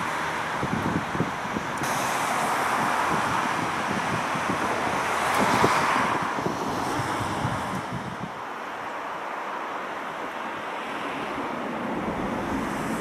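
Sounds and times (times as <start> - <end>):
wind buffeting microphone: 0.0 - 8.5
jet engines at takeoff thrust: 0.0 - 13.0.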